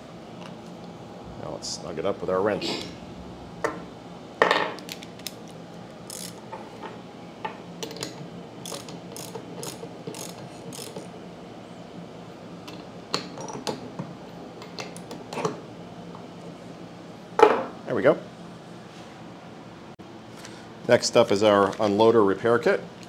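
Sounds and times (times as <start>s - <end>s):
ratchet wrench clicking: 6.1s - 6.4s, 8.6s - 11.1s.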